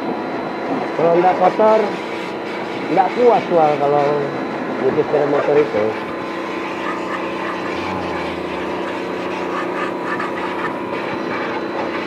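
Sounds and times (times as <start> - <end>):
pressure washer motor humming: 5.9 - 12.0.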